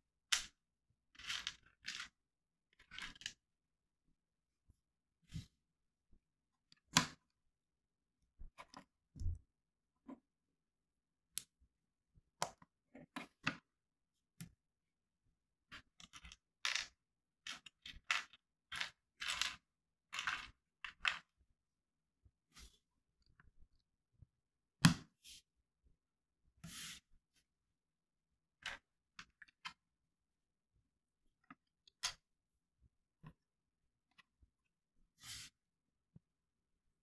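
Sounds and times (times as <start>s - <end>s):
plastic bricks clicking and rustling: 1.2s - 2.2s, 16.0s - 21.3s.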